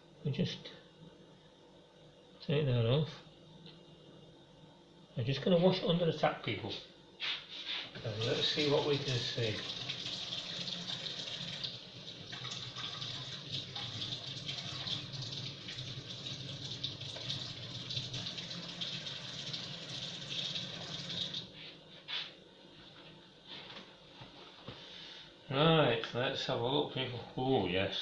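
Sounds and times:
water tap running: 0:08.0 - 0:21.5.

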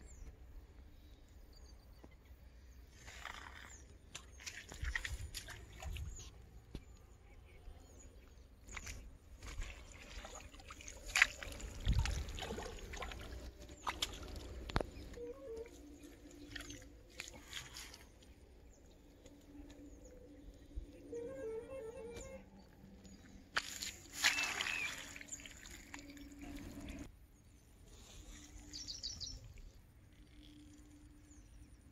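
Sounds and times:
fish splashing in water: 0:09.4 - 0:15.1, 0:23.6 - 0:27.1.

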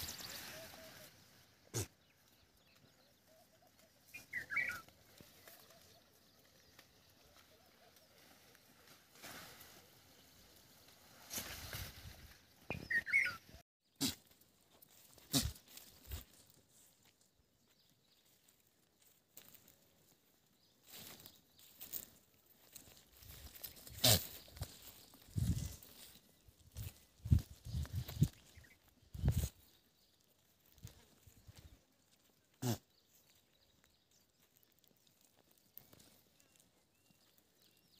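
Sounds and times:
goat herd grazing: 0:00.0 - 0:37.9.

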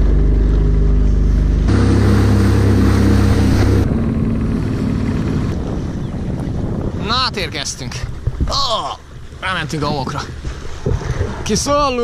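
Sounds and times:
jet ski engine running: 0:00.0 - 0:07.2
water and wind rushing: 0:00.0 - 0:12.0.

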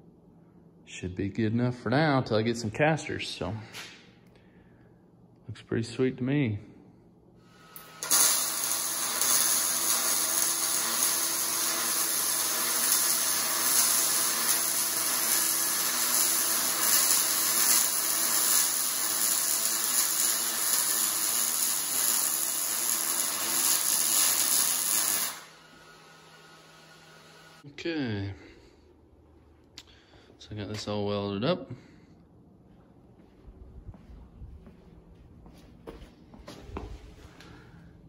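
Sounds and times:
arc welding hiss: 0:07.6 - 0:26.4.

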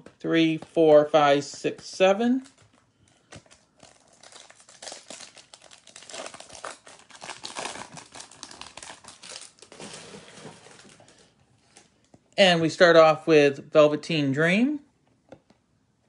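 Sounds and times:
foil wrapper crinkling: 0:02.4 - 0:11.9.

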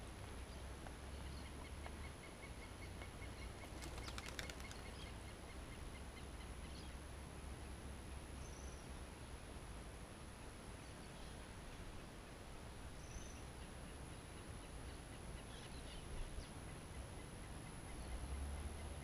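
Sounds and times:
faint bird chirps: 0:08.4 - 0:08.9.

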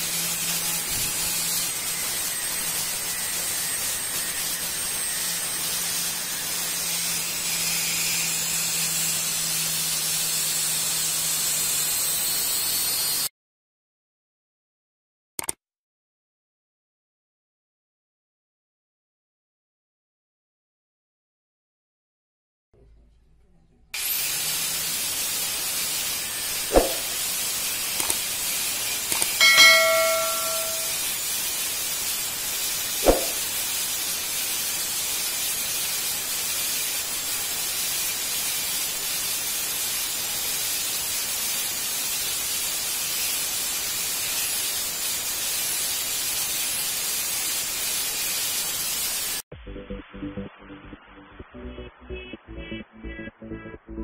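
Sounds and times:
drill whirring in concrete: 0:00.0 - 0:13.3, 0:24.0 - 0:47.1
ringing bell-like tone: 0:29.4 - 0:31.1.

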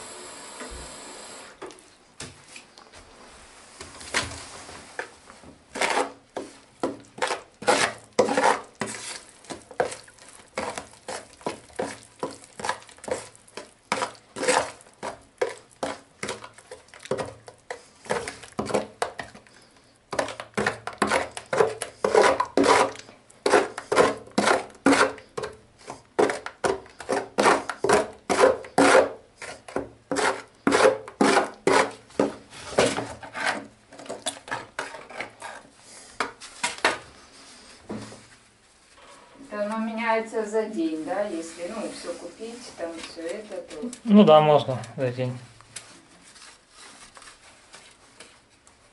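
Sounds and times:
hands kneading wet cement: 0:03.7 - 0:32.7.

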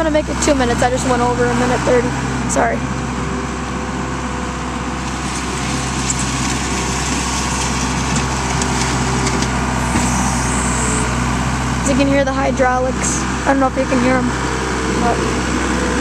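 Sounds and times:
diesel engine running: 0:00.0 - 0:16.0
hydraulics working: 0:00.0 - 0:16.0
loader scooping debris: 0:00.0 - 0:16.0.

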